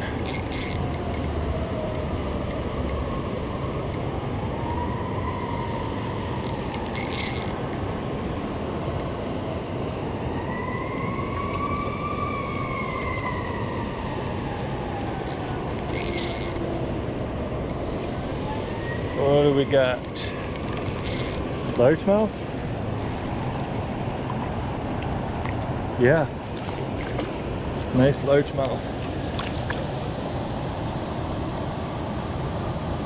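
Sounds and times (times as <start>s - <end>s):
fishing reel clicking: 0.0s - 1.3s, 6.4s - 7.8s, 15.2s - 16.6s, 20.1s - 21.4s, 23.0s - 24.0s
river water rushing: 15.1s - 33.0s.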